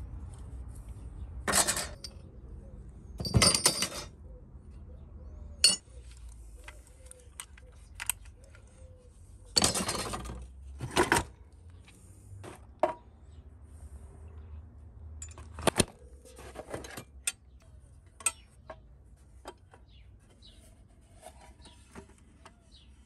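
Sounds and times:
scrap metal clinking and clattering: 0:01.5 - 0:02.2, 0:03.2 - 0:04.1, 0:05.6 - 0:05.8, 0:09.5 - 0:11.3.

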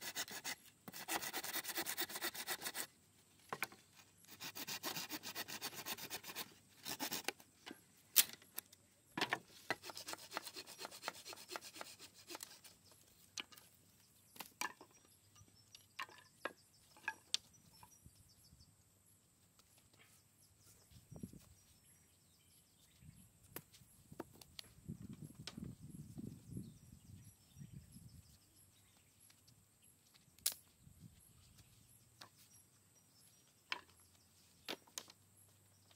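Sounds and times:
hand saw rasping through wood: 0:00.0 - 0:02.9, 0:04.3 - 0:07.3, 0:09.7 - 0:12.7.

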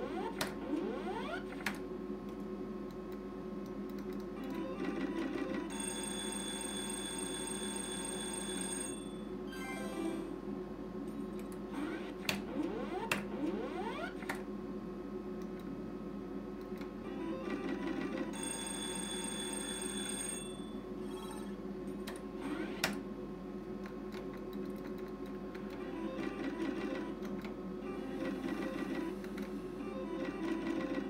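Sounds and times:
slot machine jingles and beeps: 0:05.2 - 0:10.4.

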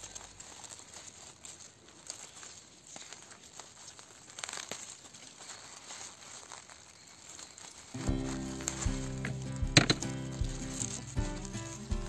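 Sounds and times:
dry leaves crackling and rustling: 0:00.0 - 0:12.0.

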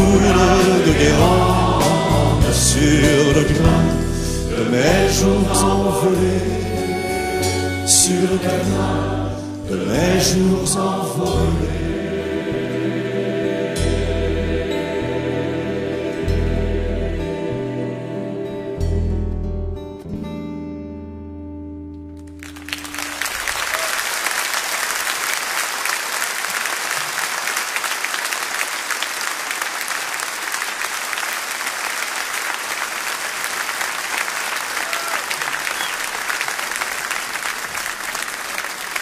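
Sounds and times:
audience applause: 0:22.3 - 0:39.0.

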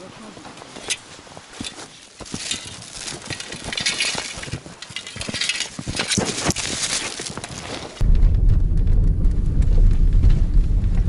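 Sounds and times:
brushing past dry twigs: 0:00.0 - 0:08.0
footsteps crunching through snow: 0:00.0 - 0:08.0
light metallic clinks: 0:00.8 - 0:07.3.

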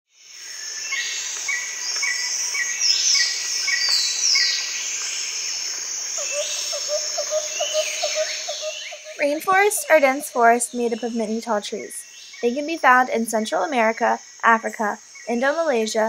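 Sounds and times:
insects chorus: 0:00.2 - 0:16.0
lower animal call: 0:06.2 - 0:11.2
short chirping call: 0:06.2 - 0:11.2.

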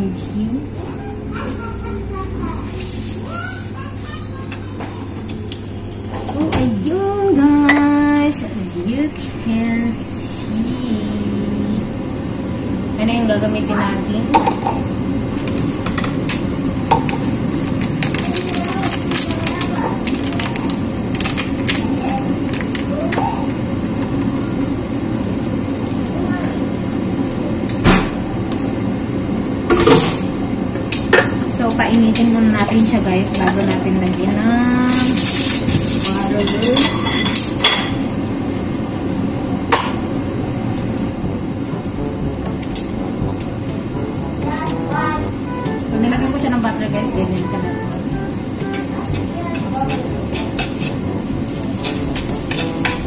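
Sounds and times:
steady low rumble: 0:05.0 - 0:22.9, 0:37.3 - 0:53.0
kitchen items clattering: 0:15.4 - 0:23.4, 0:31.2 - 0:38.0, 0:48.5 - 0:53.0.

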